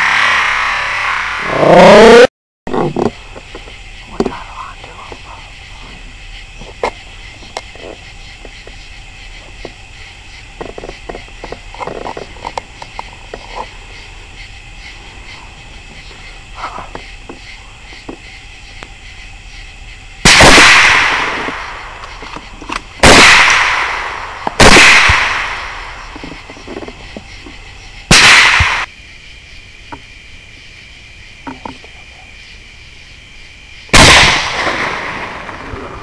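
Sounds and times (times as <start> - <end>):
rifle shots with echo: 20.3 - 21.6, 23.0 - 25.8, 33.9 - 35.7.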